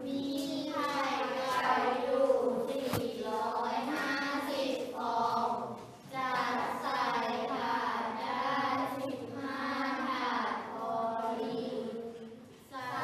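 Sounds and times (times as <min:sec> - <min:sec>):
children chanting aloud together: 0:00.0 - 0:13.0.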